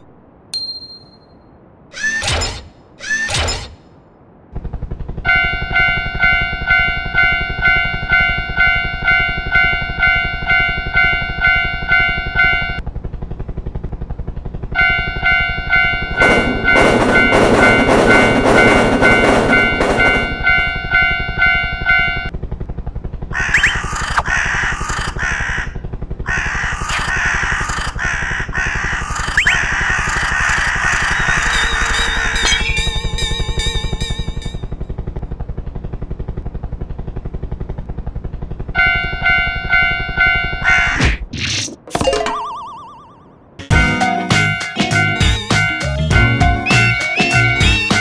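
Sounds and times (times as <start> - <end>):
steady low hum: 0.0 - 41.3
railroad crossing bell ringing: 0.6 - 1.5, 5.3 - 12.8, 14.8 - 22.3, 31.3 - 34.8, 42.4 - 46.3
train rushing past: 15.7 - 21.5
crows cawing: 23.3 - 32.0.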